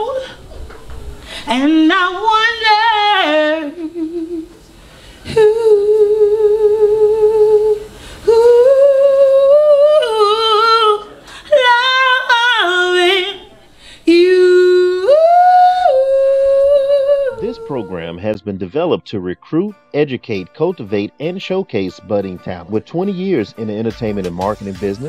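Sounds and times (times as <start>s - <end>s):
woman singing unaccompanied: 0.0s - 0.7s, 1.4s - 18.2s.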